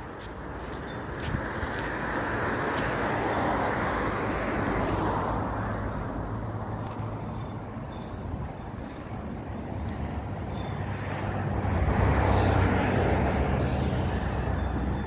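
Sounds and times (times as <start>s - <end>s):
vehicle passing: 0.0s - 15.0s.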